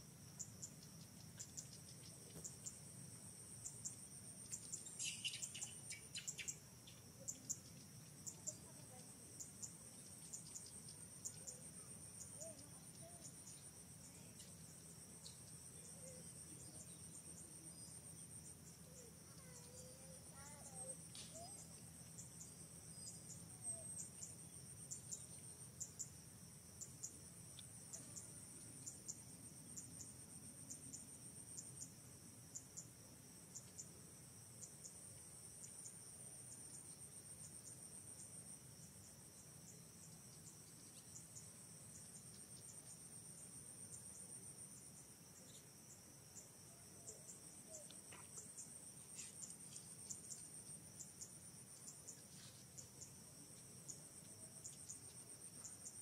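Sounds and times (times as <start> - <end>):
high-pitched insect trilling: 3.6 - 25.2
short insect chirps: 3.6 - 26.2, 35.6 - 56.0.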